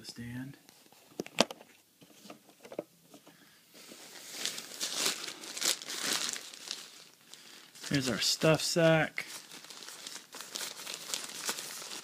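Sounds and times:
nylon fabric rustling: 3.8 - 7.2, 9.3 - 12.0.

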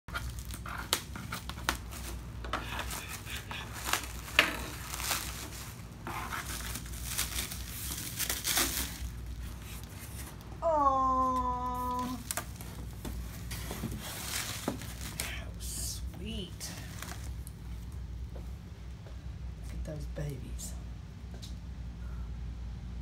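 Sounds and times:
plastic wrap crinkling: 0.1 - 10.6, 11.3 - 15.6, 16.4 - 17.9.

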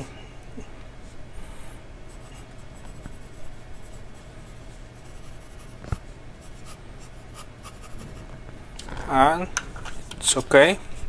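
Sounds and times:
pen scratching on paper: 6.4 - 8.2.

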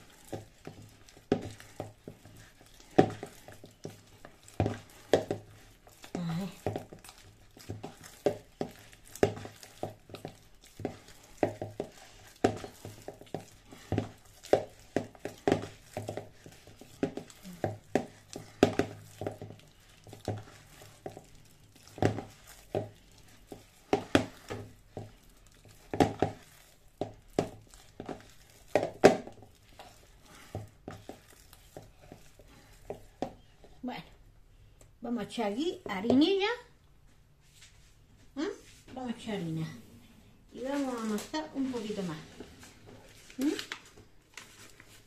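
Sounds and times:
dough squelching and slapping: 0.0 - 45.0
plastic bowl knocking: 6.2 - 21.3, 25.8 - 26.4, 27.0 - 29.5.

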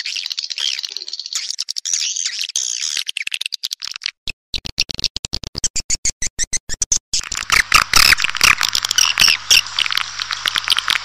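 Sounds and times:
high twittering chirps: 0.0 - 3.9, 5.8 - 11.0.

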